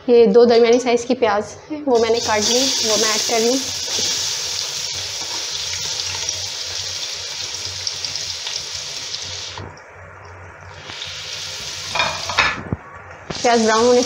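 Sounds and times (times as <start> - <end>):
onions sizzling in hot oil: 2.0 - 9.8, 10.7 - 14.0.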